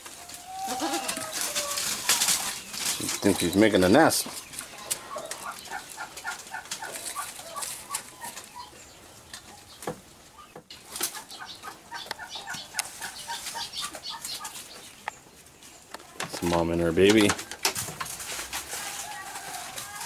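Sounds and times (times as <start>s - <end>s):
goats feeding on leaves: 0.0s - 20.0s
leaves crackling and rustling: 0.0s - 20.0s
bird chirps: 2.3s - 15.9s.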